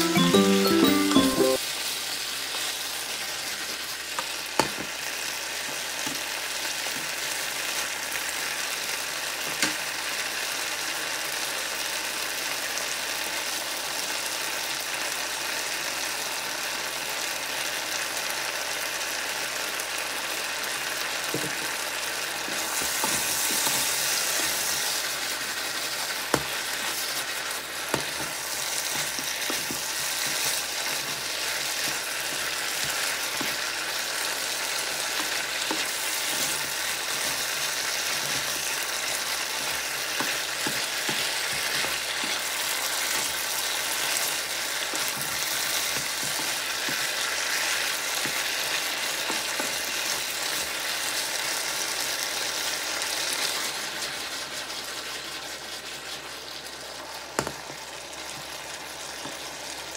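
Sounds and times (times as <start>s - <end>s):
food sizzling in a wok: 0.0s - 59.9s
wooden spatula scraping pan: 22.4s - 25.1s.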